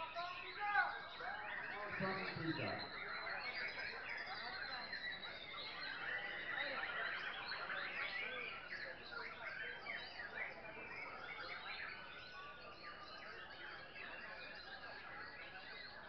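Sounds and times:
birds whistling and chirping: 0.0 - 16.0.

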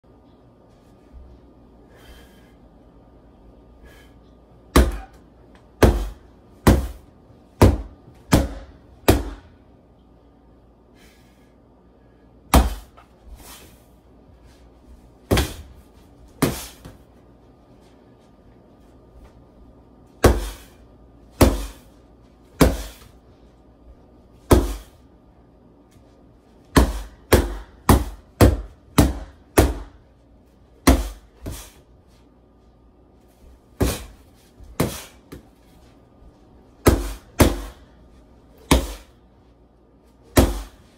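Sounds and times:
stick whacking heavy bag: 5.8 - 9.5, 12.5 - 13.6, 15.3 - 17.0, 20.2 - 20.8, 21.4 - 21.9, 22.5 - 23.2, 24.4 - 25.0, 26.7 - 30.0, 30.8 - 31.8, 33.7 - 35.5, 36.8 - 37.8, 38.6 - 39.1, 40.3 - 40.9.

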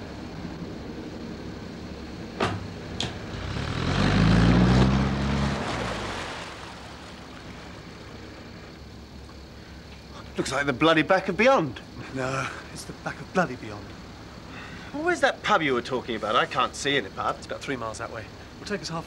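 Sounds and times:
boat engine throbbing: 2.6 - 8.6
water rushing at bow: 4.4 - 8.6.

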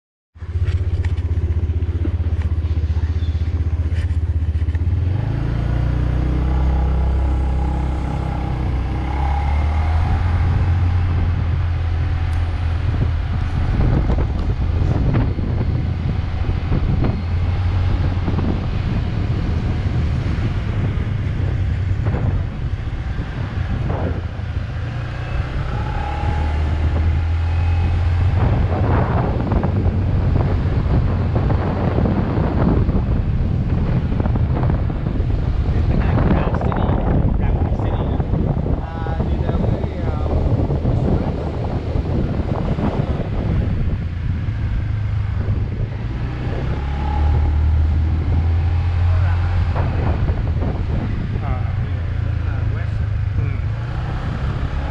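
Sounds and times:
motorbike engine running: 0.4 - 5.1
wind buffeting microphone: 0.4 - 54.9.

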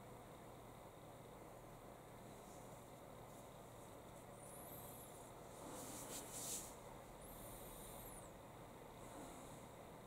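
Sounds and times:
faint high-pitched whine: 0.0 - 10.0
faint room hiss: 0.0 - 10.0
soft rustle: 2.2 - 7.1.

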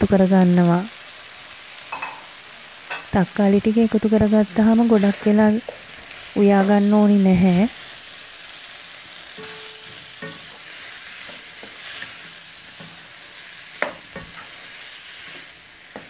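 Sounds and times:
food sizzling in a pan: 0.0 - 16.0
spoon knocking and scraping pan: 1.9 - 2.3, 2.9 - 3.1, 9.4 - 16.0.

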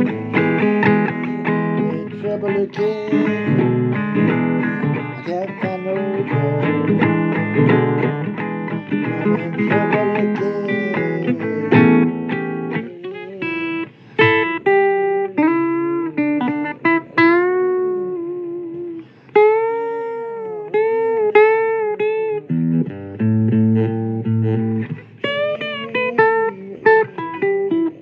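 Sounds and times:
blues guitar bent notes: 0.0 - 28.0.

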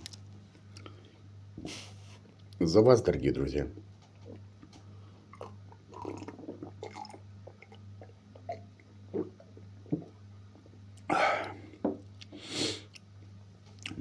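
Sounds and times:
steady low hum: 0.0 - 14.0
faint swallowing: 5.3 - 10.1
man gulping a drink: 5.3 - 13.0.

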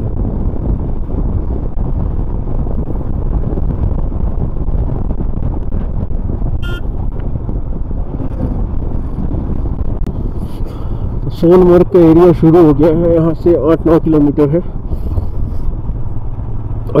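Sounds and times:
motorcycle running: 0.0 - 17.0
wind rumble on microphone: 0.0 - 17.0
short high horn toot: 6.6 - 7.0.

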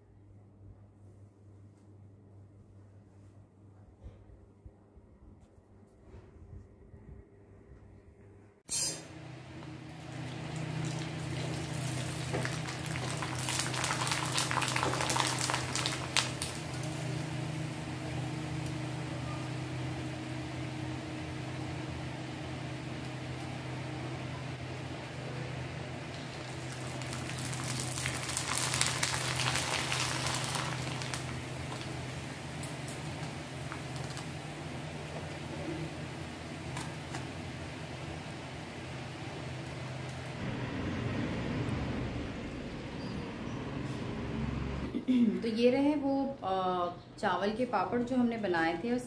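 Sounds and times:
steady low hum: 0.0 - 13.2
food sizzling in hot oil: 10.0 - 18.4, 26.1 - 34.4.

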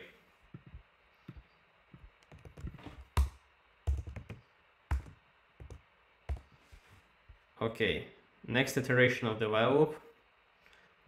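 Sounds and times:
computer keyboard typing: 2.2 - 6.5.

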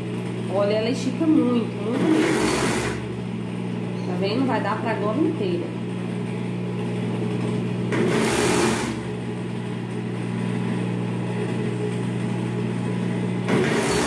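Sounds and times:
sewing machine motor humming: 1.4 - 3.3, 7.4 - 9.2, 13.4 - 14.0
sewing machine stitching burst: 2.0 - 3.1, 7.9 - 9.0, 13.5 - 14.0.

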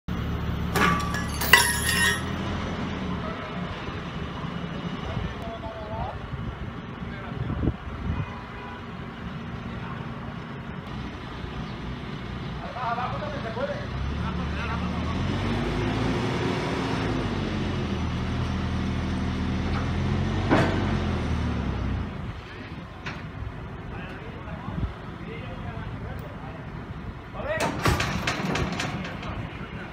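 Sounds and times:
sharp metallic clanks: 0.7 - 2.4.

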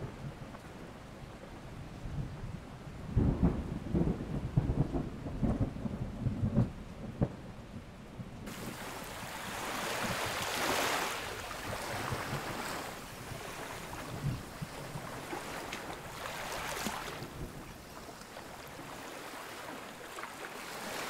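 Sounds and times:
thunder rumbling: 3.0 - 19.2
rushing hiss: 8.5 - 11.6.

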